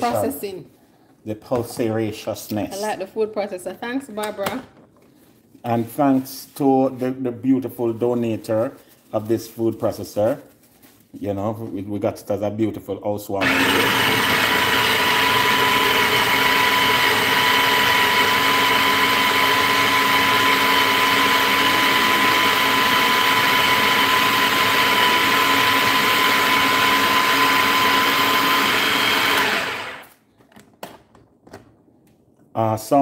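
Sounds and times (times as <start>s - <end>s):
food processor chopping: 13.4s - 30.2s.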